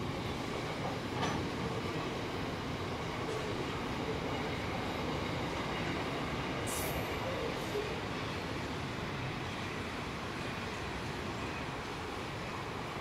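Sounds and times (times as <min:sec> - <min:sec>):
train wheels rumbling on rails: 0:00.0 - 0:13.0
brief high hiss: 0:06.6 - 0:07.2.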